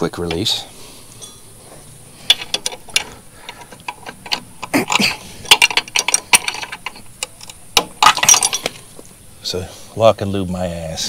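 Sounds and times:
metal clicks and clinks: 2.2s - 8.9s.

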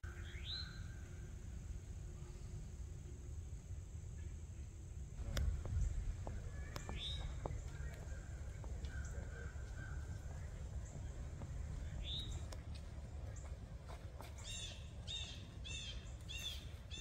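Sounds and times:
bird calling: 0.0s - 1.2s, 5.2s - 13.6s, 14.2s - 17.0s.

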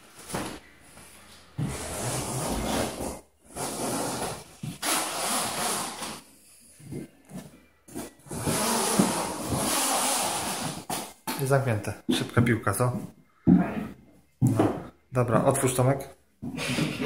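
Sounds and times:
plastic zipper being pulled: 3.6s - 6.2s, 8.4s - 10.9s.

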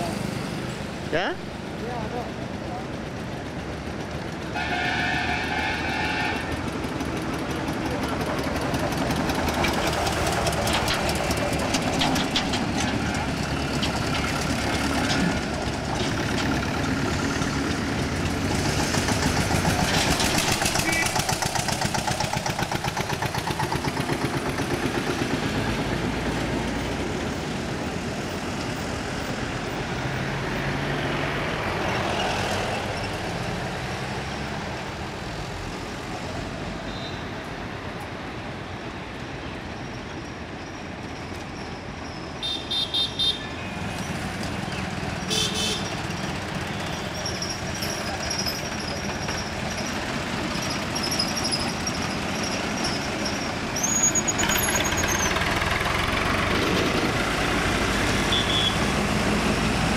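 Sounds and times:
highway traffic passing: 0.0s - 59.9s.

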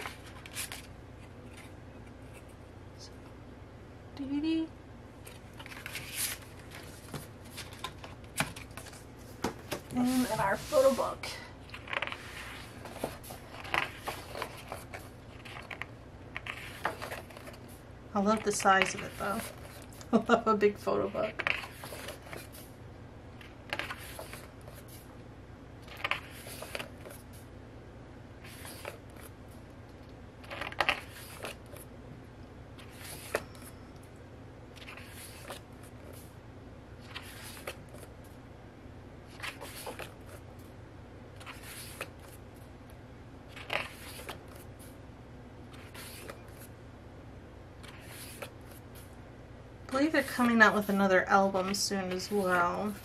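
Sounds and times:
book pages turning: 0.0s - 2.6s, 5.2s - 20.2s, 21.0s - 22.8s, 23.4s - 25.1s, 25.8s - 27.5s, 28.4s - 31.9s, 32.7s - 33.7s, 34.7s - 36.3s, 37.0s - 38.4s, 39.2s - 40.7s, 41.3s - 42.7s, 43.5s - 45.0s, 45.6s - 46.7s, 47.8s - 49.2s, 50.0s - 53.0s
faint low hum: 0.0s - 53.0s.

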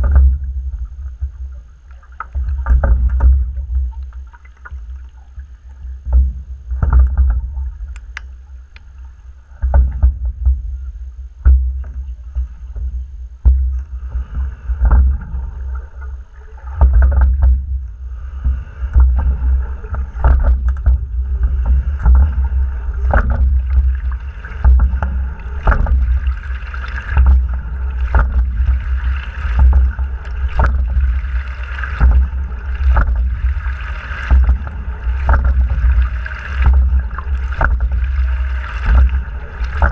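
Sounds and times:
low rumble through hull: 0.0s - 39.9s
oars and rigging knocking: 0.0s - 39.9s
water rushing along hull: 0.0s - 39.9s.

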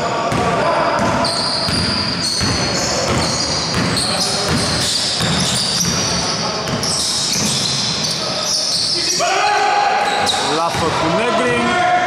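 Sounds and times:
basketball bouncing on wooden court: 0.3s - 8.1s
shoe squeaks: 1.2s - 10.9s.

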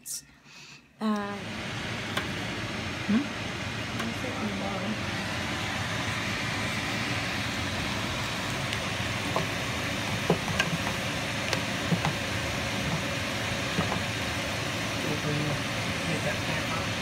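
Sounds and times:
vegetables sizzling in hot oil: 4.6s - 17.0s
wooden spoon stirring: 8.7s - 14.3s.

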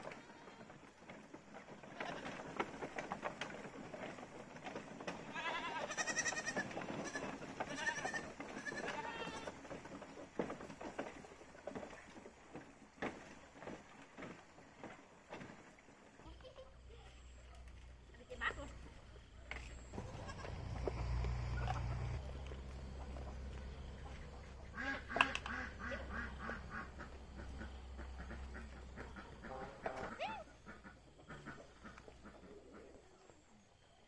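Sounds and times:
goats bleating: 0.0s - 0.7s, 5.2s - 9.6s, 19.9s - 22.2s
hooves and footsteps on bamboo: 0.0s - 32.6s.

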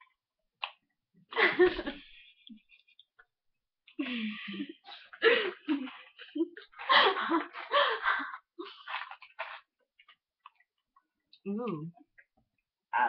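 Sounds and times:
women laughing: 1.4s - 2.8s, 4.0s - 8.5s.

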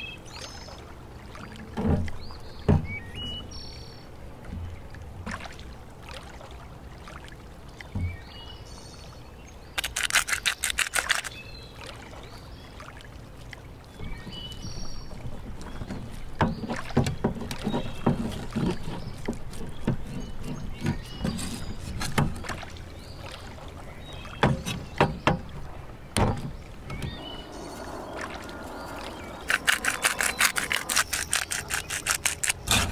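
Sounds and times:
soft knocks on board: 1.8s - 3.0s
birds chirping: 13.9s - 32.9s.

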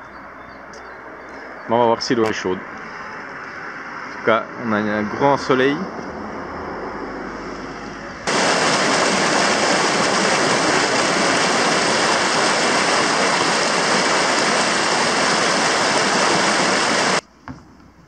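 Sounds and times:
vehicle rumble: 0.0s - 18.0s
whitewater rushing: 8.3s - 17.2s.

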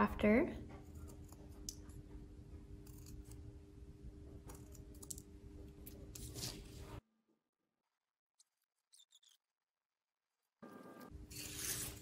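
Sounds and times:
scissors snipping paper: 2.8s - 3.4s.

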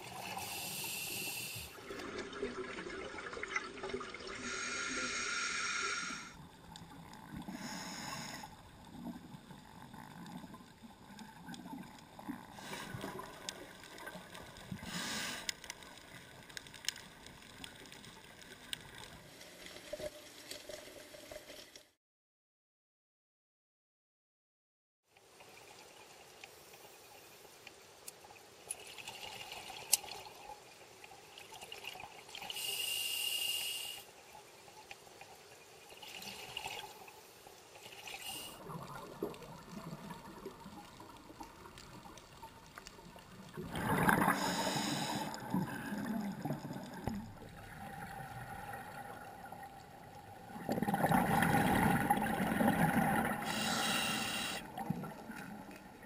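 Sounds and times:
regulator hissing inhalation: 0.2s - 1.8s, 4.4s - 6.4s, 7.5s - 8.5s, 14.8s - 15.5s, 32.5s - 34.1s, 44.3s - 45.4s, 53.4s - 54.7s
bubbling exhaled air: 43.5s - 49.7s, 50.4s - 55.7s.

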